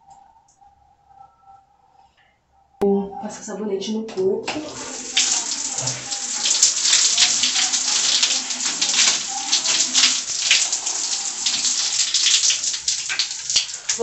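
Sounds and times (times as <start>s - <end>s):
shower water splashing: 4.4s - 14.0s.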